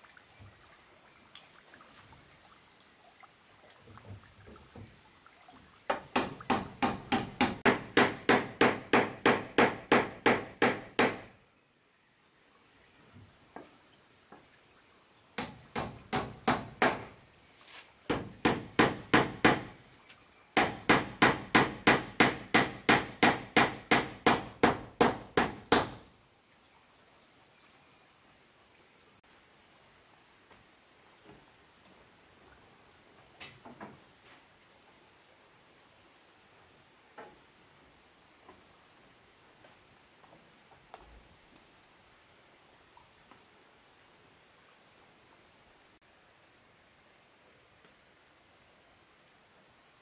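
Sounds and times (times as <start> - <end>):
tool striking wood: 5.9 - 11.3, 15.4 - 17.2, 18.1 - 19.8, 20.6 - 26.0.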